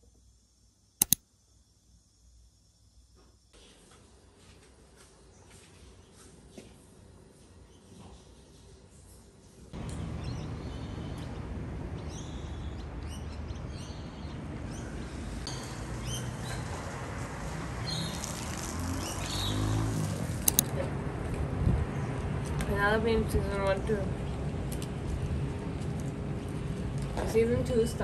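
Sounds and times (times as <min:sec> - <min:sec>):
sharp clicks: 0:01.0 - 0:01.2, 0:20.4 - 0:20.7
birds chirping: 0:09.8 - 0:16.9, 0:17.8 - 0:20.6.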